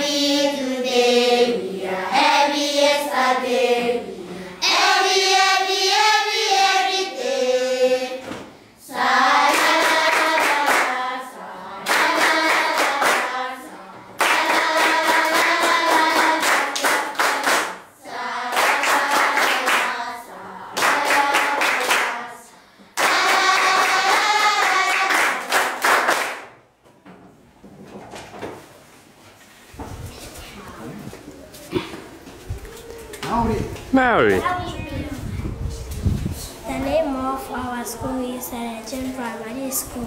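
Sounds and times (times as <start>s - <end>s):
children singing in unison: 0.0s - 25.8s
rhythmic hand-clapping: 9.4s - 11.2s, 11.8s - 13.6s, 14.2s - 20.2s, 20.8s - 22.3s, 23.0s - 26.6s.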